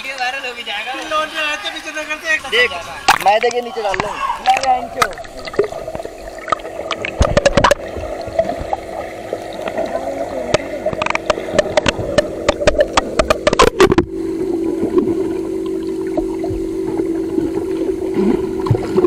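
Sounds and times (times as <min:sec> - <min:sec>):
water splashing and gurgling: 0:02.2 - 0:19.0
water clicks on microphone: 0:03.0 - 0:08.4, 0:10.5 - 0:14.1.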